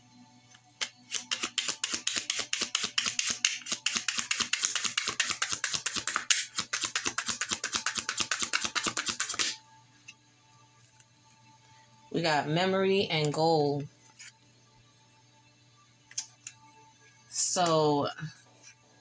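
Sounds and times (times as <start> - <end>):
cards being shuffled: 0.8 - 9.6.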